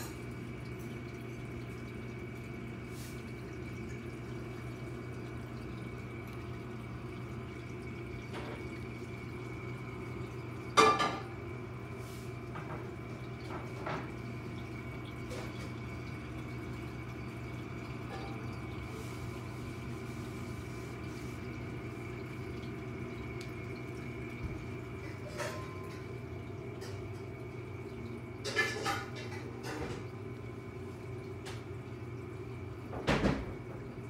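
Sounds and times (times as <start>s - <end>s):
aquarium pump hum: 0.0s - 34.0s
flowing and dripping water: 0.0s - 34.0s.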